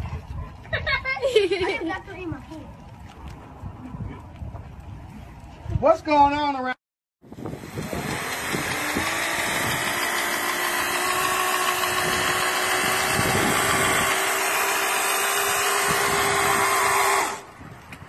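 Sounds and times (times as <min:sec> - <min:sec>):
electric motor whine: 0:07.3 - 0:17.8
hiss: 0:10.8 - 0:17.5.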